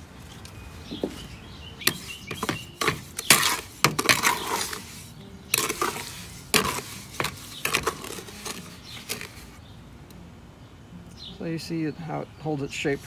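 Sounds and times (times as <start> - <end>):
trowel scraping wet concrete: 1.8 - 9.6.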